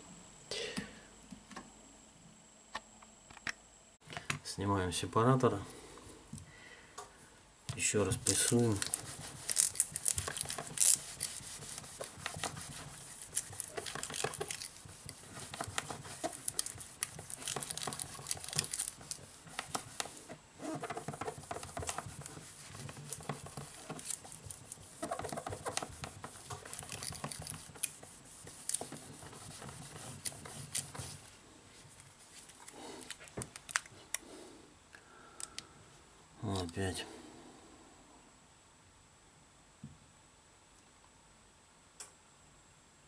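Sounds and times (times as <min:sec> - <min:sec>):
low steady hum: 0:00.0 - 0:43.0
paper napkin rubbing on glass: 0:08.2 - 0:31.2.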